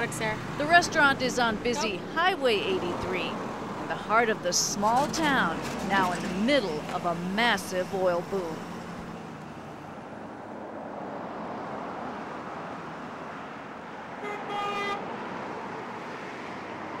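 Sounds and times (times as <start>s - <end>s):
highway traffic: 0.0s - 17.0s
car horn honking: 14.2s - 15.1s.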